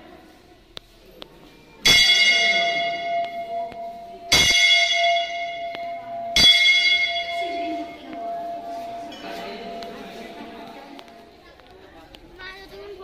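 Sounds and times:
temple bell ringing: 1.8 - 11.1.

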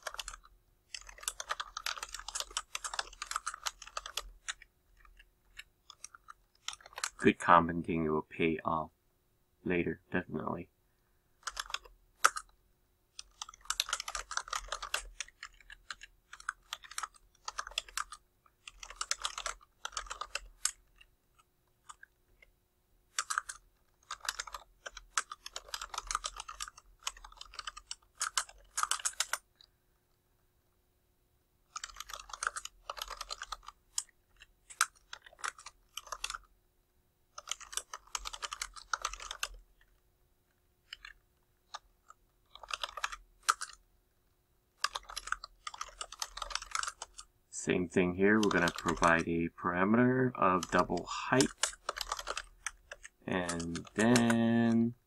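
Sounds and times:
typing on computer keyboard: 0.0 - 7.3, 11.4 - 21.1, 23.1 - 29.7, 31.7 - 36.5, 37.3 - 39.9, 40.8 - 43.8, 44.8 - 47.3, 48.4 - 49.2, 50.6 - 54.8.

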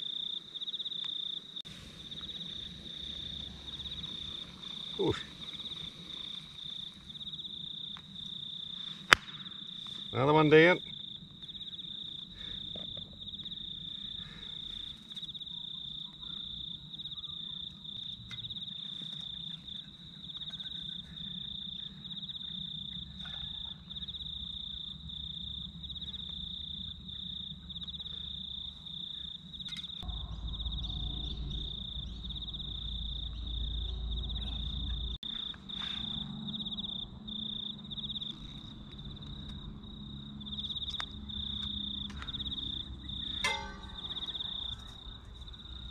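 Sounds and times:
crickets chirping: 0.0 - 45.9
low rumble: 30.0 - 45.9.

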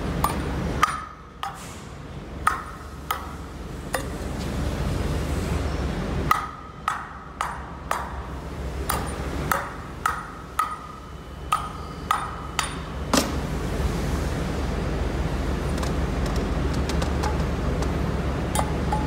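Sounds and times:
hammer striking steel: 0.2 - 1.6, 6.3 - 13.3.

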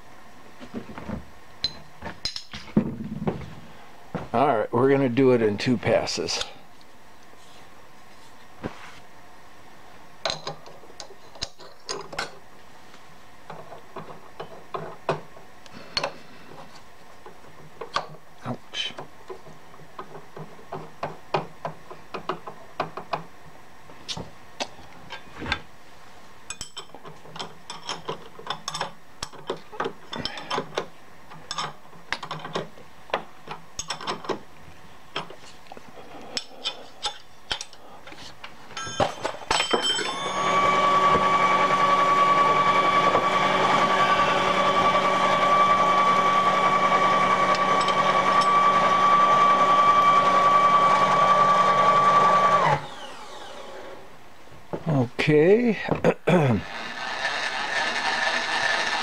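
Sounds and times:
milling machine motor whine: 40.1 - 54.1, 56.7 - 59.0.

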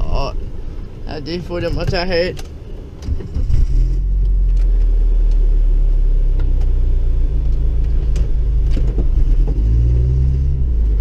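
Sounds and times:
car engine running under load: 0.0 - 11.0
body knocks and rattles: 7.9 - 9.6.

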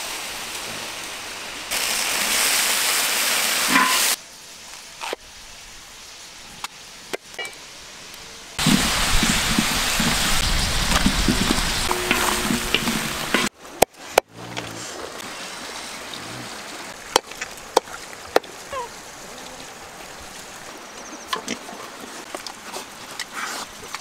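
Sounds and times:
pork sizzling in a wok: 1.7 - 5.2, 8.6 - 13.5.

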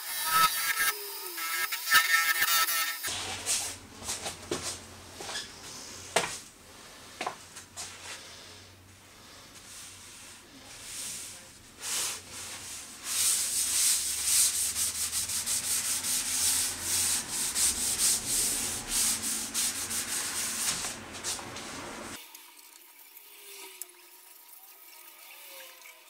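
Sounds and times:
paper towel rubbing wood: 10.0 - 22.2.

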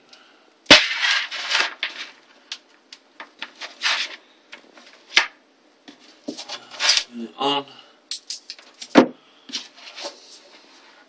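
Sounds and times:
cables rustling: 1.0 - 5.3, 5.9 - 7.2.

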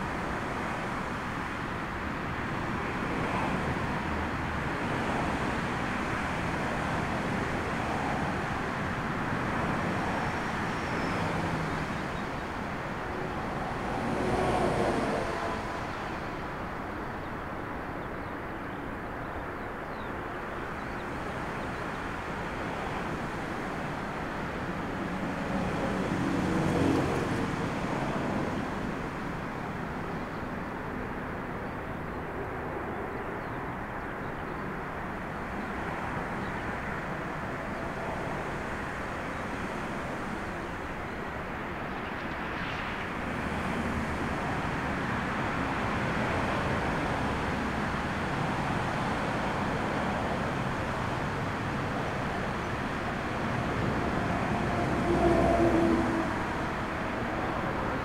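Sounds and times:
storm wind: 21.2 - 58.0.

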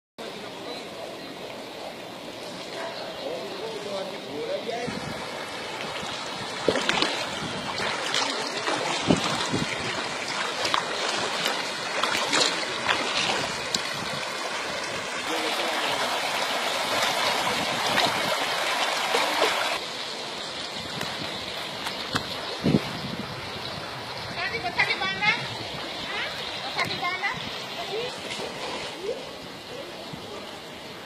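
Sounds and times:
floodwater rushing: 0.2 - 31.0
small clicks and splashes: 6.7 - 9.5, 10.2 - 13.9, 21.0 - 22.3.

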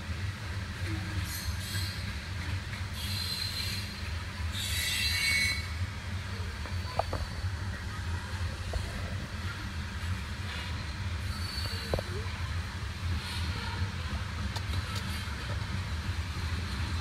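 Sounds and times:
train rumbling past: 0.0 - 17.0
high-pitched wheel squeal: 3.0 - 5.8, 11.3 - 12.0.

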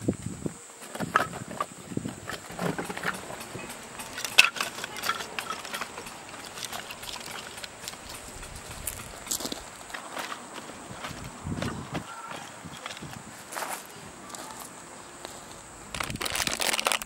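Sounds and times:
firewood pieces clacking: 1.0 - 10.5, 16.0 - 17.0.

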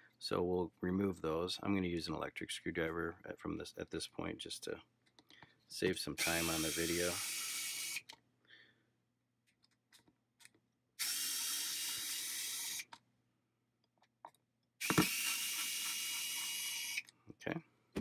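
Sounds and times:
electric screwdriver whirring: 6.2 - 8.2, 11.0 - 13.0, 14.8 - 17.1.

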